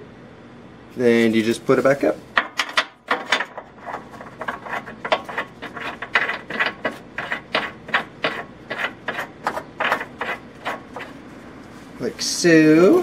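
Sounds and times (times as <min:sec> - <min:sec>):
metal clicks and scrapes: 0:02.4 - 0:11.2.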